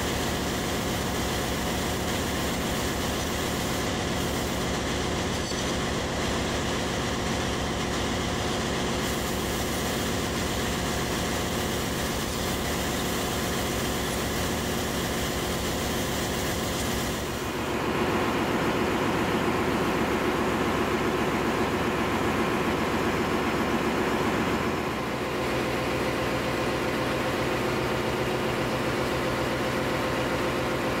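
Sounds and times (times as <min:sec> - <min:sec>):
engine-room machinery drone: 0:00.0 - 0:31.0.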